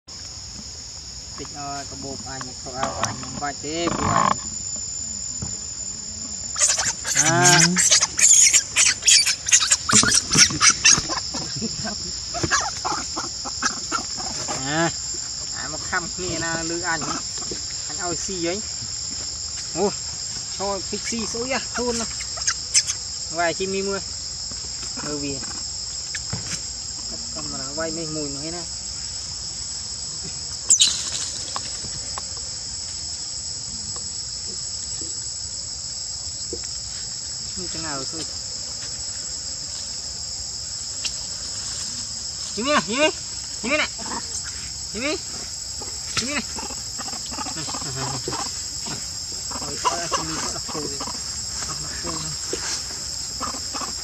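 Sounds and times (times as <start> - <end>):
insects droning: 0.0 - 54.0
monkeys crying and squealing: 6.6 - 14.6, 21.0 - 23.0, 30.7 - 31.4, 43.6 - 44.6, 45.8 - 52.8, 53.4 - 54.0.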